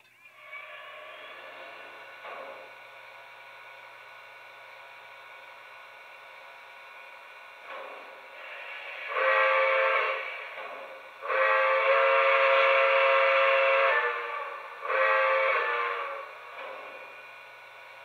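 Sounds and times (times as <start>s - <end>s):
model train steam whistle blasts: 7.7s - 18.0s.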